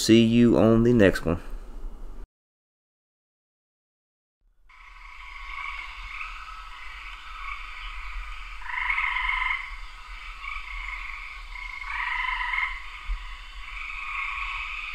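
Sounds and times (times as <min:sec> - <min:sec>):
chorus of frogs calling: 0:04.7 - 0:14.9
loud frog trills: 0:04.7 - 0:14.9.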